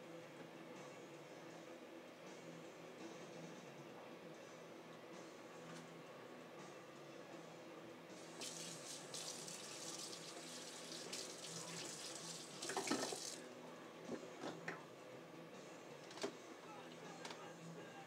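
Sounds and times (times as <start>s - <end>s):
tap running water into sink: 8.4s - 13.4s.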